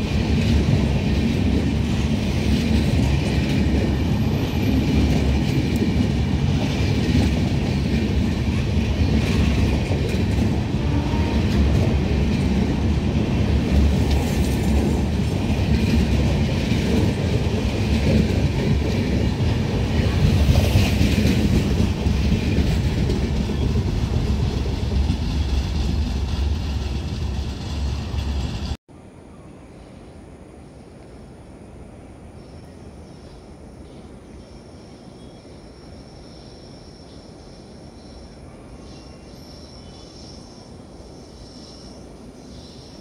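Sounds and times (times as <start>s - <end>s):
train wheels rumbling on rails: 0.0s - 28.8s.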